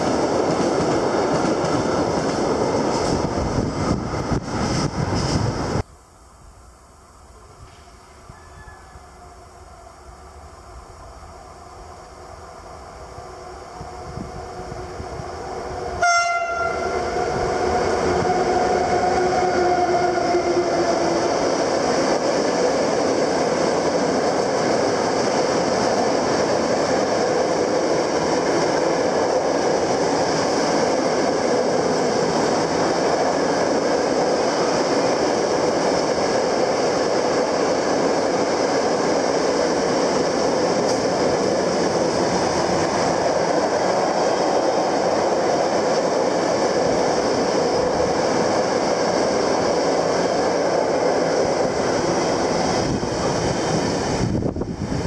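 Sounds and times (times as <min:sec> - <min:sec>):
train passing: 0:00.0 - 0:55.0
train horn blast: 0:16.0 - 0:17.2.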